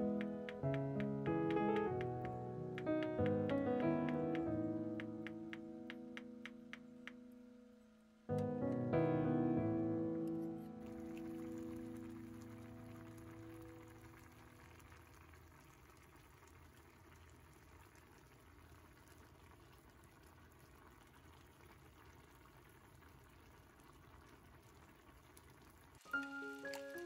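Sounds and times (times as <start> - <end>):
background music: 0.0 - 12.7, 26.1 - 27.0
water bubbling at a boil: 10.8 - 27.0.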